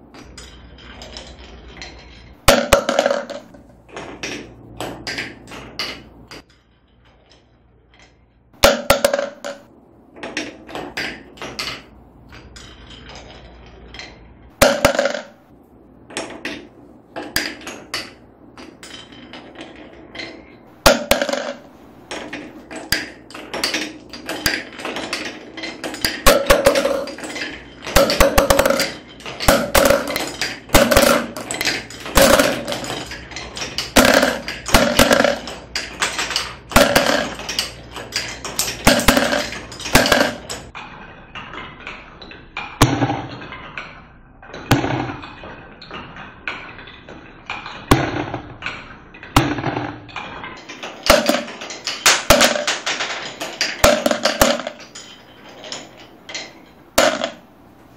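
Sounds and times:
marbles clattering down wooden run: 2.5s - 3.7s, 20.9s - 40.7s.

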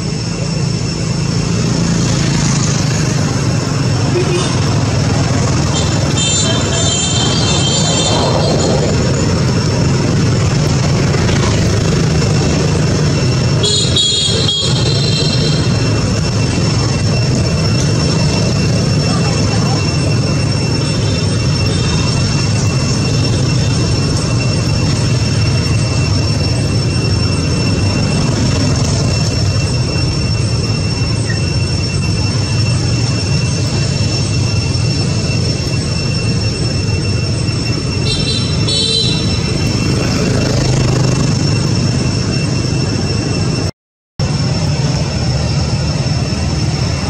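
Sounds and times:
constant high-pitched whine: 0.0s - 47.0s.

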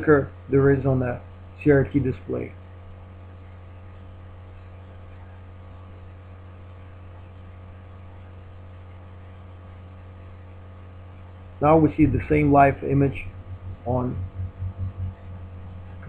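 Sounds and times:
electrical mains hum: 0.0s - 16.0s
faint high steady tones: 9.6s - 16.0s.

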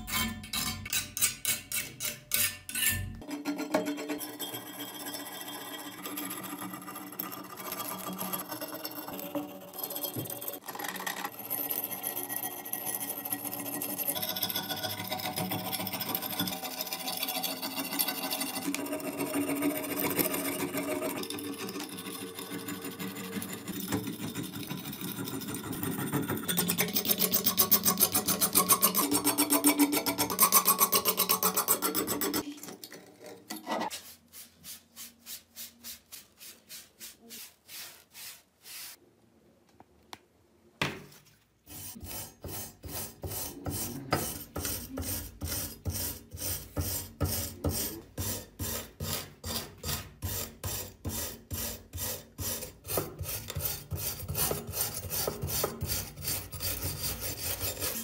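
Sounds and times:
metal scraper scraping blade: 0.0s - 34.0s, 41.7s - 58.0s
bristle brush sweeping: 33.9s - 39.0s.

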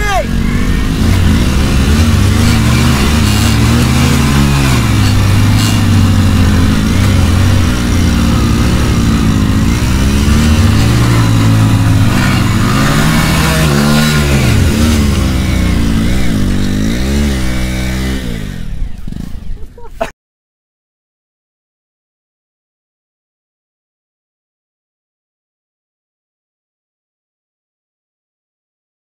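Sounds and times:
motorcycle engines revving hard: 0.0s - 19.8s.

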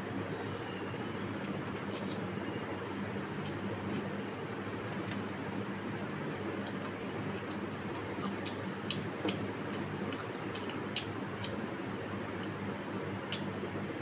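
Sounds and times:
chewing and mouth sounds: 6.6s - 12.6s.

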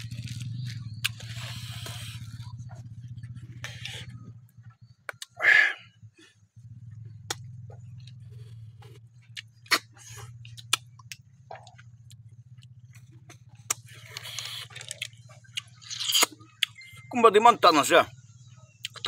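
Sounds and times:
low steady hum: 0.0s - 19.0s
slurping: 13.7s - 16.8s.

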